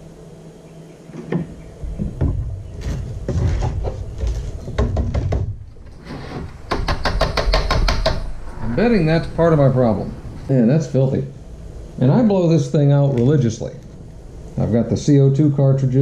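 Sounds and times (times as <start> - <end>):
plastic knocks and scrapes: 1.1 - 8.3.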